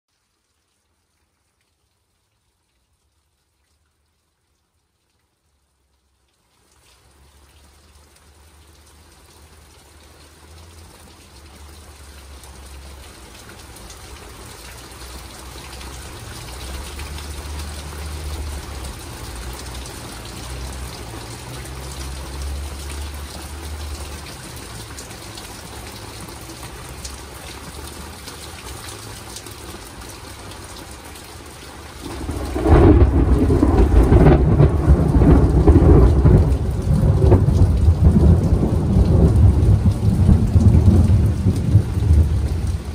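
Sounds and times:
steady rain: 0.1s - 42.9s
loud thunder clap: 32.0s - 42.5s
thunder rumbling: 32.0s - 42.9s.

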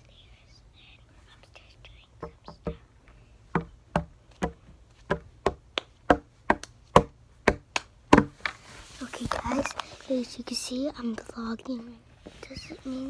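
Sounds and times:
child's hands tapping: 2.2s - 2.8s, 3.6s - 8.4s.

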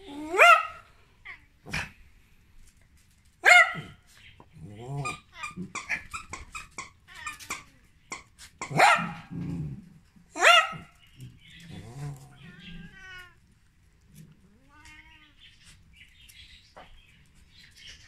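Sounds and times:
dog yelping: 0.1s - 0.9s, 3.4s - 4.0s, 5.0s - 9.3s, 10.3s - 11.0s
animals scuffling: 2.3s - 18.0s
dog whining: 4.6s - 8.8s.

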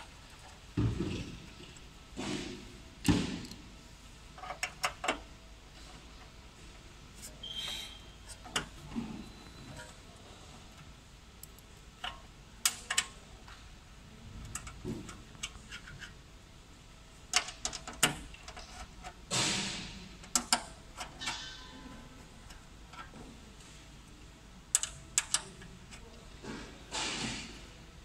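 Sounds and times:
metal clicks and knocks: 4.4s - 5.3s, 11.4s - 13.2s, 14.4s - 16.1s, 17.3s - 19.6s, 20.2s - 21.8s, 24.7s - 26.2s.

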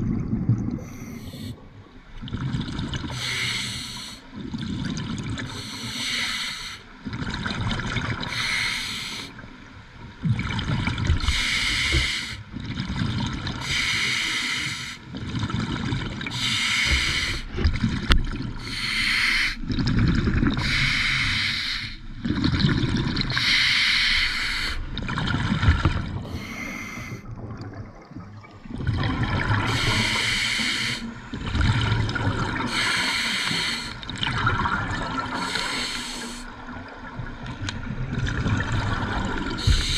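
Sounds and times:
regulator hissing inhalations: 3.2s - 4.2s, 5.6s - 6.9s, 8.3s - 9.4s, 11.3s - 12.4s, 18.6s - 19.6s, 20.6s - 22.0s, 23.4s - 24.9s, 26.3s - 27.2s, 29.7s - 31.1s, 32.7s - 34.0s, 35.4s - 36.5s, 39.6s - 39.9s
bubbling exhalations underwater: 22.2s - 23.4s, 24.9s - 30.2s, 31.3s - 32.9s, 34.0s - 35.8s, 36.7s - 39.9s.

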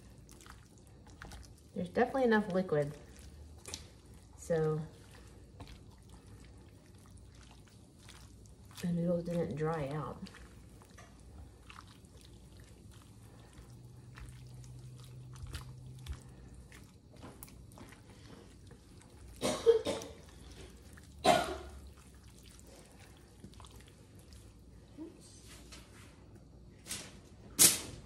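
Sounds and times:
spatula stirring and scraping food: 0.0s - 25.8s
person coughing: 19.4s - 20.3s, 21.2s - 21.8s.

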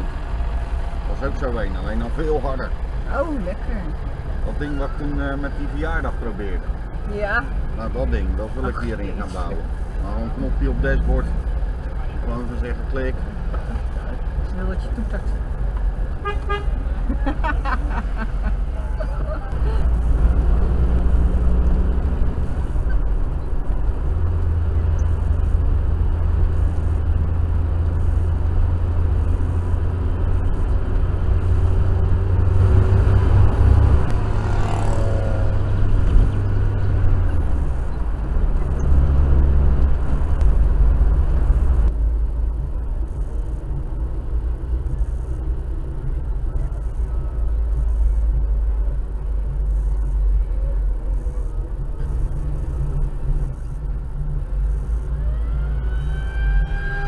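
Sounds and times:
car engine droning: 0.0s - 57.0s
road noise: 0.0s - 57.0s.

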